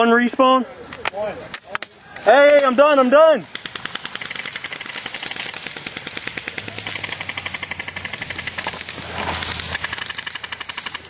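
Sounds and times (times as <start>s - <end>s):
airsoft gun firing full-auto: 3.5s - 11.0s
rustling: 4.4s - 11.0s.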